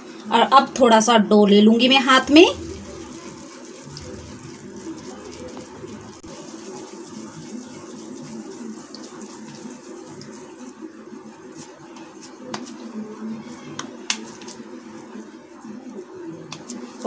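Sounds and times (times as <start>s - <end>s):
steady background hum: 0.0s - 8.4s
hands squishing soft mixture: 1.8s - 17.0s.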